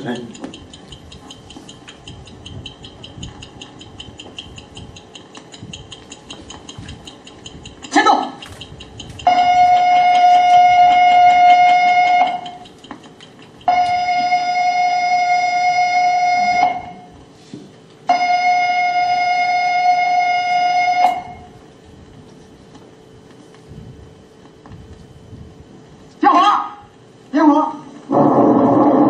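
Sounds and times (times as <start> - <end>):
buzzy electronic alarm tones: 9.0 - 12.6, 13.7 - 17.2, 18.1 - 21.6.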